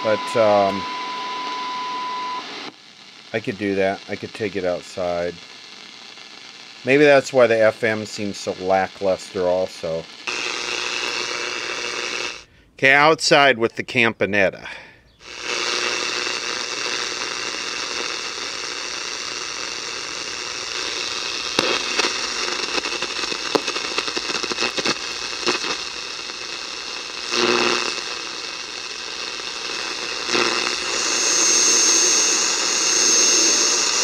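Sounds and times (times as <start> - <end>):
high whistle: 0.0 - 2.5
shortwave radio static: 0.0 - 12.5, 15.2 - 34.0.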